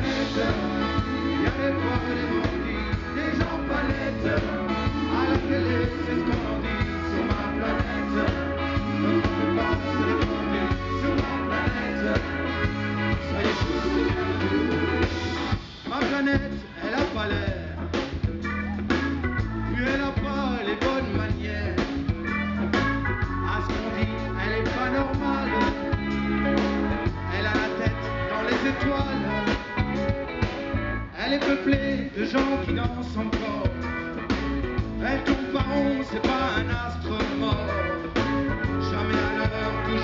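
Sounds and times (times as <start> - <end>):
drum kit beat: 0.0 - 40.0
electric bass guitar: 0.0 - 40.0
man singing lead: 0.0 - 40.0.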